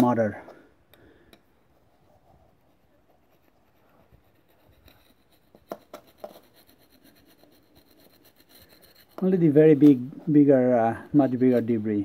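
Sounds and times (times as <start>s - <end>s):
hand tool scraping metal: 4.0s - 12.0s.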